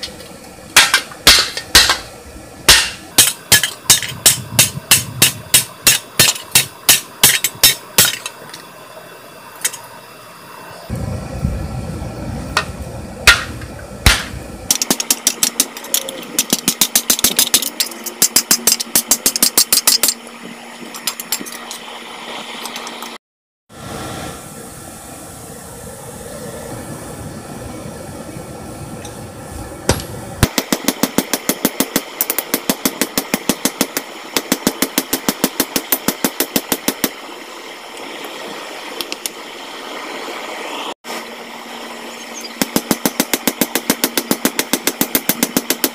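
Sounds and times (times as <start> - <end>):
hammer striking metal: 0.8 - 2.1, 2.7 - 8.3, 13.3 - 20.2.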